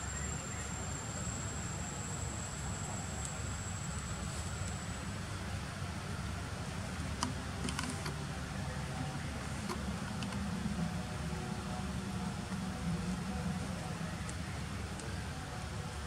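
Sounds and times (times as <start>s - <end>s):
thin high whine: 0.0s - 5.5s
low outdoor rumble: 0.0s - 16.0s.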